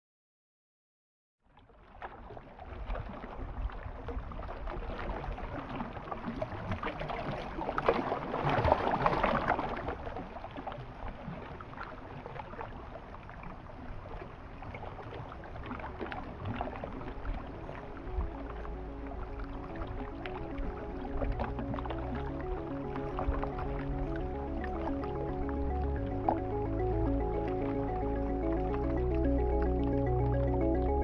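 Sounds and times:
small waves lapping on a lake: 1.5 - 24.2.

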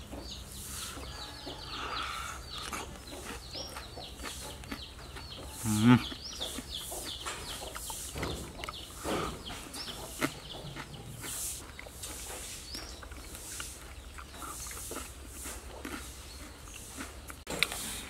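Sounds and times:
birds chirping: 0.0 - 18.0
person chewing: 0.6 - 18.0.

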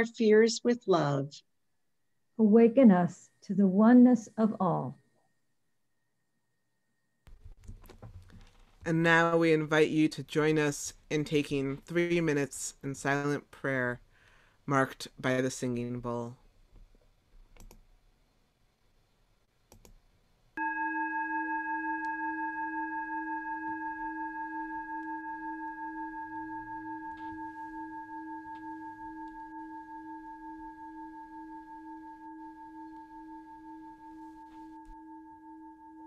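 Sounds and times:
singing bowl ringing: 20.6 - 36.0.

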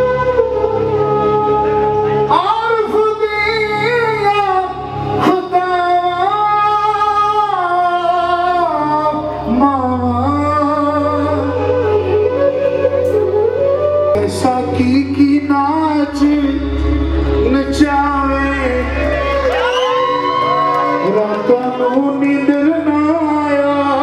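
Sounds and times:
man singing into a microphone: 0.0 - 12.8, 14.1 - 19.5, 20.8 - 24.0
low instrumental accompaniment: 0.0 - 24.0.

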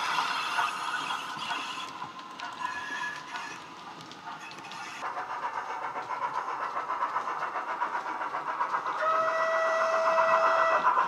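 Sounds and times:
model locomotive running sounds: 0.0 - 11.0
locomotive whistle: 9.0 - 11.0.

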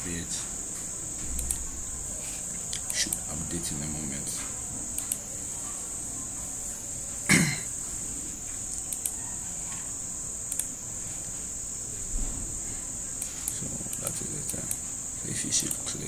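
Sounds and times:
faint clicks: 0.7 - 1.7, 4.4 - 5.3, 8.5 - 9.8, 10.5 - 10.7, 13.2 - 14.8, 15.6 - 15.9.

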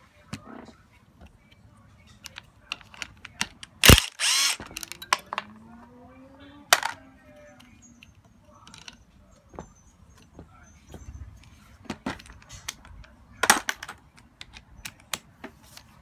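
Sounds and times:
sharp click: 3.8 - 4.6
power tool whirring: 3.8 - 4.9.

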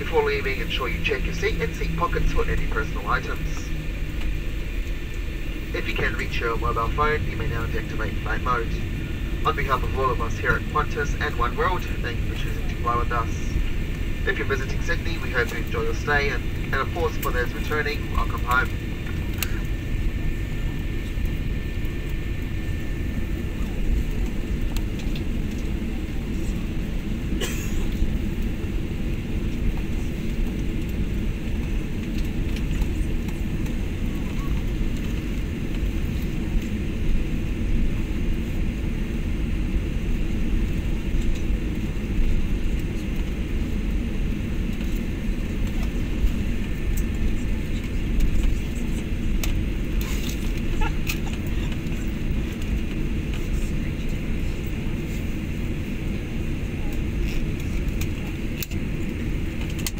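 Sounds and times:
jet airliner cabin rumble: 0.0 - 59.9.

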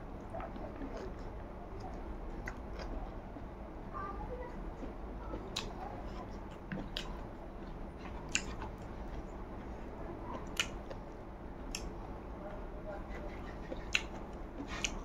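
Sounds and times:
person chewing wetly: 0.0 - 3.6, 4.8 - 11.1, 13.1 - 15.0
sharp lip smacks: 8.3 - 8.6, 13.6 - 15.0.

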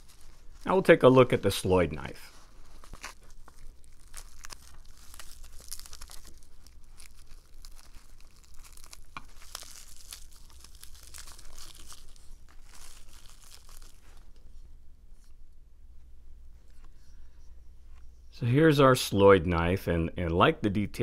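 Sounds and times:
plastic wrap crinkling: 0.0 - 14.6.

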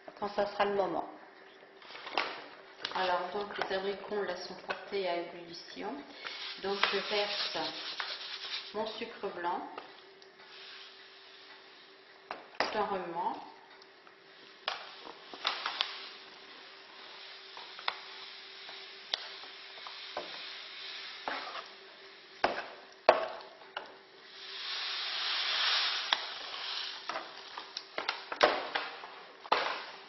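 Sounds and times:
sugar pouring from paper bag: 6.2 - 9.0
hissing: 14.4 - 21.8, 24.2 - 27.9.

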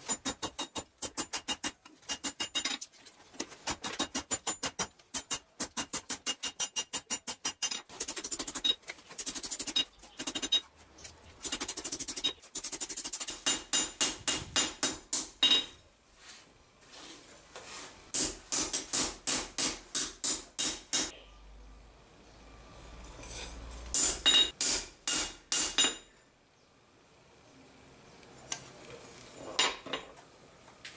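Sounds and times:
hammer striking steel on anvil: 3.7 - 7.9, 13.2 - 15.8, 18.1 - 21.1, 23.9 - 26.1.

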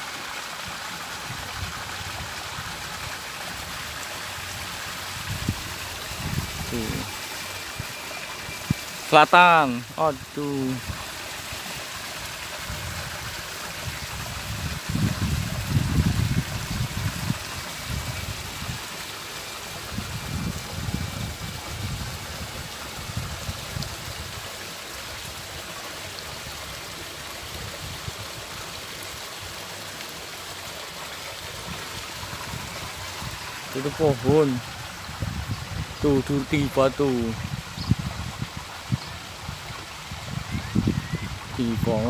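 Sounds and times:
wind buffeting microphone: 5.1 - 7.1, 12.6 - 18.8, 19.9 - 24.4, 34.2 - 36.3, 37.3 - 42.0.

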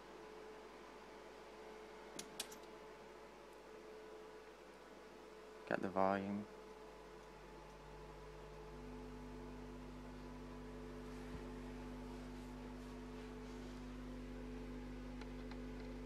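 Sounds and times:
subwoofer low test tone hum: 3.8 - 16.0.

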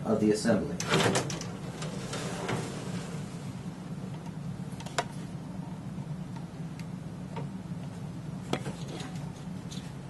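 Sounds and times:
steady low hum: 0.0 - 10.0
metal carriage clicks and knocks: 0.8 - 2.6.

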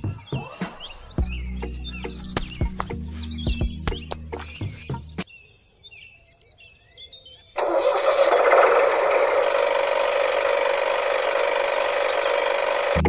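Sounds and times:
steady mechanical running noise: 7.6 - 13.0.

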